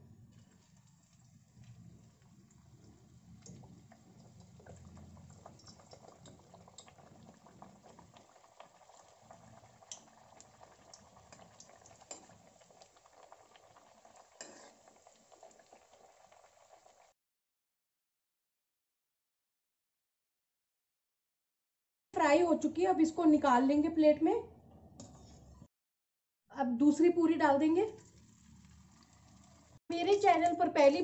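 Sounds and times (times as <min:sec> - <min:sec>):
oil sizzling with crackles: 0:00.2 - 0:17.2, 0:27.5 - 0:31.0.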